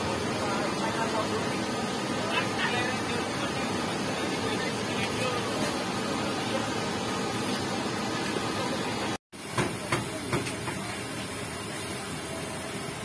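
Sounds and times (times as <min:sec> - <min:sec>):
steady background noise: 0:00.0 - 0:13.0.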